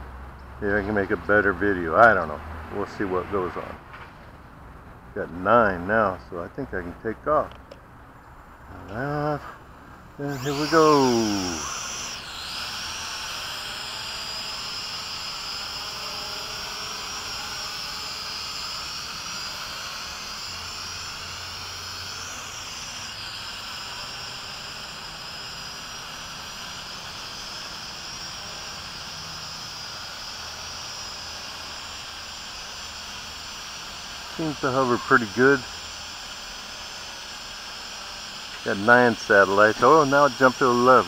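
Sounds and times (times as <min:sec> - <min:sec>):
drone propellers whining: 0:08.6 - 0:41.0.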